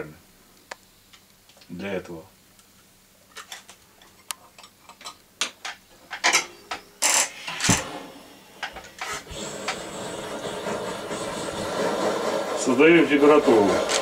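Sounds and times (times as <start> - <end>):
gas torch hissing: 7.0 - 14.0.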